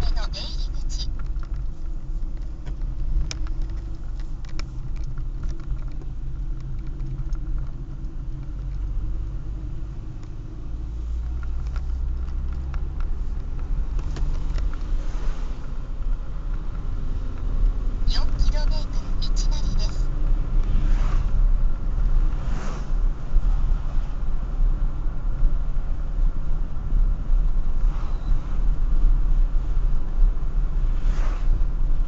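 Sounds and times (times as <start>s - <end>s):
car engine and road rumble: 0.0s - 32.0s
faint clicks and rattles: 1.0s - 9.1s, 11.2s - 15.0s.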